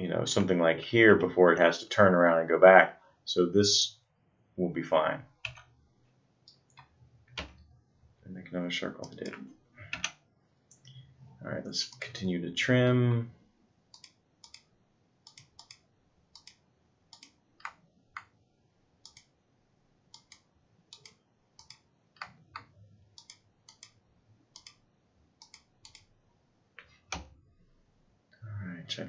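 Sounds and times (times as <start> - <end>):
computer mouse clicking: 6.4 - 7.7, 9.0 - 11.0, 13.9 - 18.4, 19.0 - 19.3, 20.1 - 24.8, 25.4 - 26.1.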